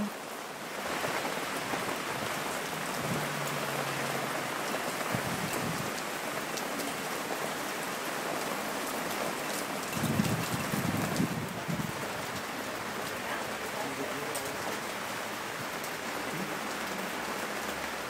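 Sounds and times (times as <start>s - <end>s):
heavy rain pouring: 0.0s - 18.0s
water dripping off awning: 0.0s - 18.0s.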